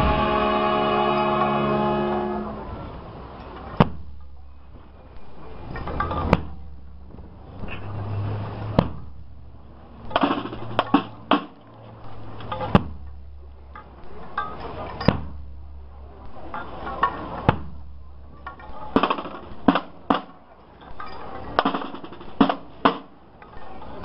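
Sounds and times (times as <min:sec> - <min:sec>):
sharp knocks: 0:03.7 - 0:04.3, 0:05.8 - 0:07.2, 0:08.6 - 0:09.2, 0:10.0 - 0:11.6, 0:12.5 - 0:14.2, 0:15.0 - 0:15.6, 0:17.4 - 0:18.0, 0:18.6 - 0:20.4, 0:21.6 - 0:23.2.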